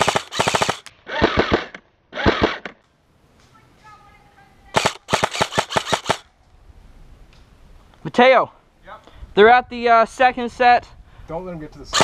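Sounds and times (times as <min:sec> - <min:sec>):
airsoft rifle rapid shots: 0:00.0 - 0:02.7, 0:04.7 - 0:06.3.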